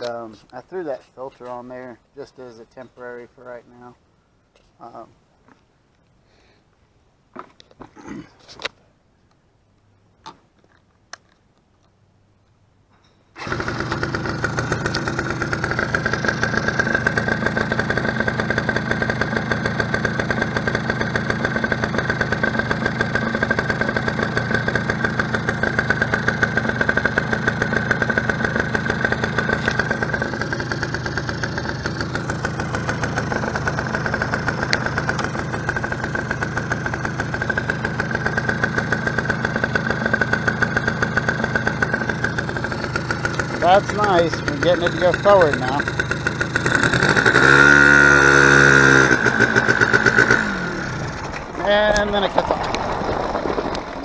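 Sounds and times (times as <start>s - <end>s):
engine starting and idling: 13.4s - 54.0s.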